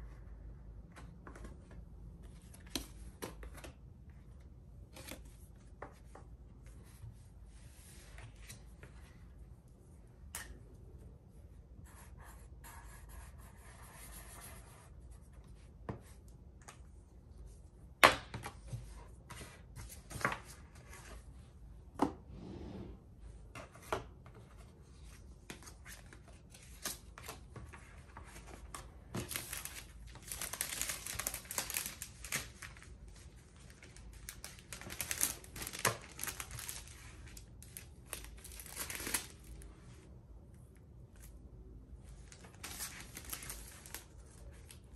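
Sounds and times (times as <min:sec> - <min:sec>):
paper rustling: 0:25.5 - 0:39.6.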